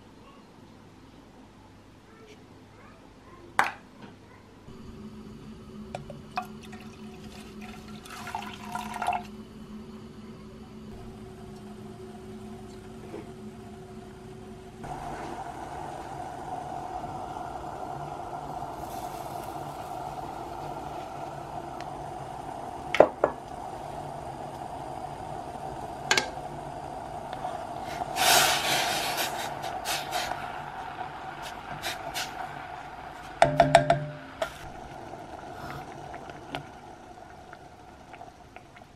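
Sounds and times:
steady hum: 0:04.6 - 0:38.9
short hissing rush: 0:14.8 - 0:33.4
wooden spoon tapping in pot: 0:33.4 - 0:34.2.

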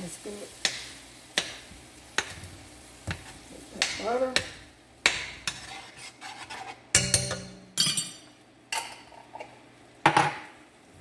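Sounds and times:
spoon knocking against pan: 0:06.9 - 0:08.1.

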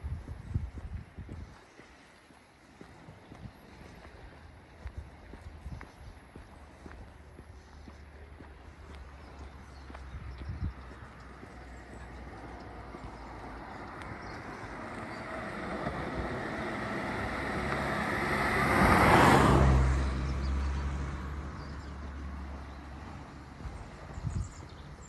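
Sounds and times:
car driving past: 0:11.4 - 0:23.9.

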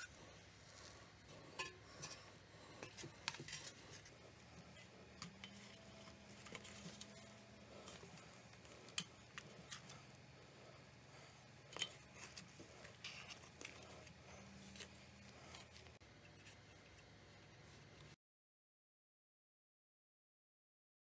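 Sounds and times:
low steady hum: 0:00.0 - 0:18.2
light clicks and taps on metal pan: 0:01.6 - 0:02.2.

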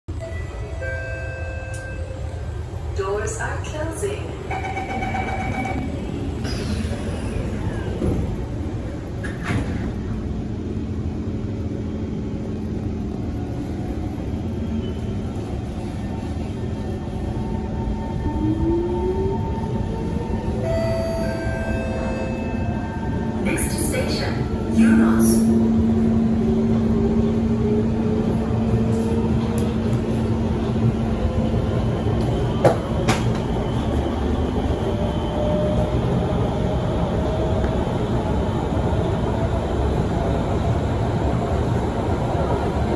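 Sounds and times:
train humming: 0:00.1 - 0:42.9
train doors sliding shut: 0:05.5 - 0:10.1, 0:32.2 - 0:34.0.

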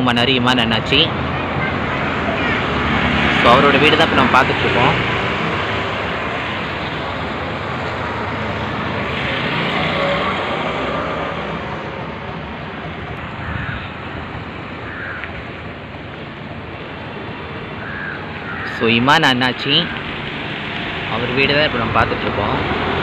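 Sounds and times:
rushing outdoor background noise: 0:00.0 - 0:23.0.

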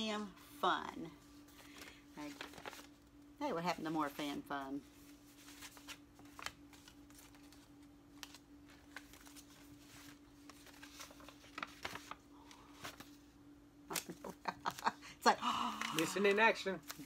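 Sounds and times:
faint steady hum: 0:00.0 - 0:17.0
paper cards rustling: 0:01.2 - 0:03.2, 0:04.1 - 0:13.3, 0:13.9 - 0:15.0, 0:15.8 - 0:17.0.

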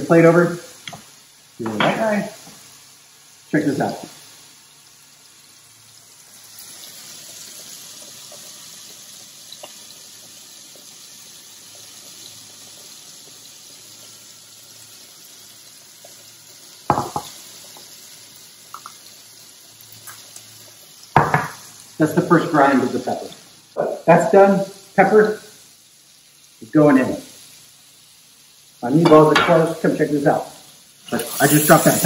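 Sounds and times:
peppercorns hissing through sieve: 0:19.4 - 0:32.0.

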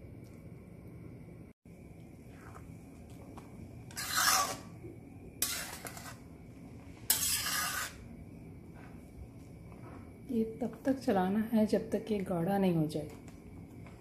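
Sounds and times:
metal spatula scraping iron pan: 0:03.9 - 0:04.8, 0:05.4 - 0:06.2, 0:07.1 - 0:08.1.

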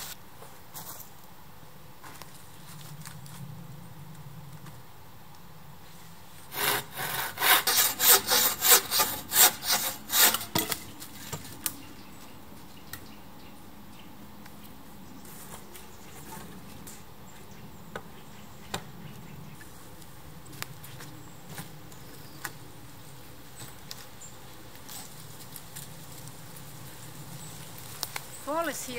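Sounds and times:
rhythmic scraping on wood: 0:06.4 - 0:12.3.

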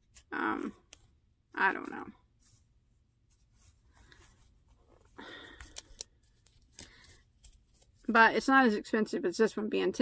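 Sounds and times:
yarn rustling: 0:01.6 - 0:05.4.

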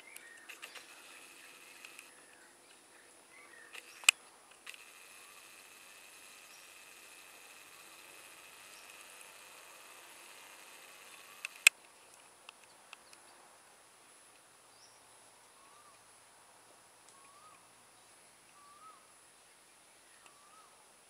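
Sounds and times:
sharp click: 0:00.1 - 0:02.1, 0:03.7 - 0:05.4, 0:10.5 - 0:13.2
small ticks: 0:00.1 - 0:02.8, 0:03.7 - 0:13.2, 0:20.2 - 0:20.4
thin steady high tone: 0:04.7 - 0:11.7.

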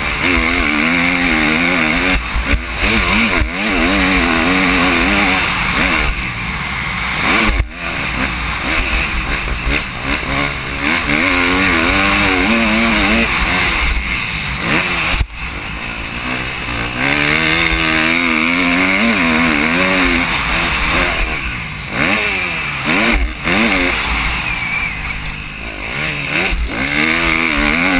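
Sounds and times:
motocross bike engine revving: 0:00.0 - 0:27.9.

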